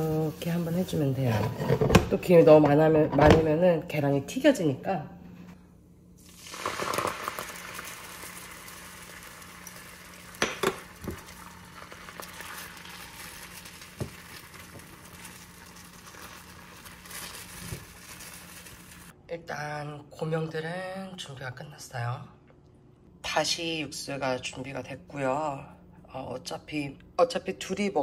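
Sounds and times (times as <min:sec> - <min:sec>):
egg sizzling in a frying pan: 0:06.2 - 0:19.2.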